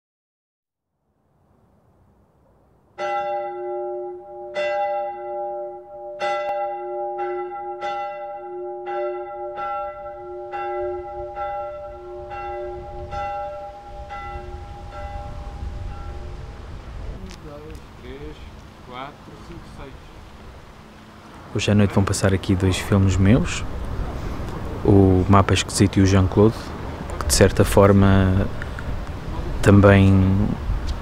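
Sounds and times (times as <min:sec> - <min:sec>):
church bell tolling: 0:03.0 - 0:16.8
low rumble: 0:09.8 - 0:21.1.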